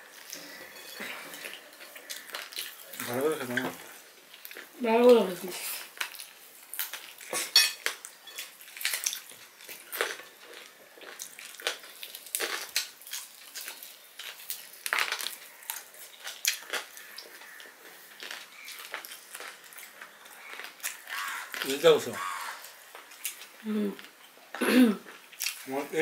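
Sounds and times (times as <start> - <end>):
people chewing: 0.0 - 26.0
fork clinking on plates: 7.3 - 8.6.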